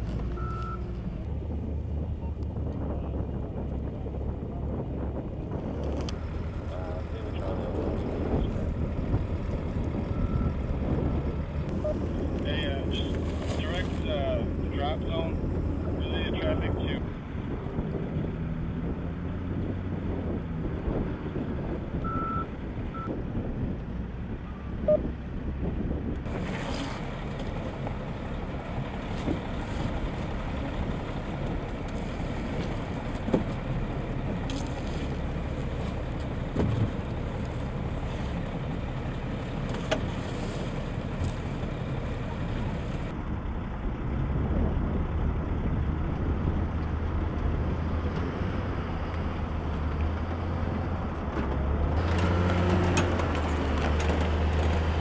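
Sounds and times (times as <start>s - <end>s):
diesel truck engine idling: 27.0s - 44.0s.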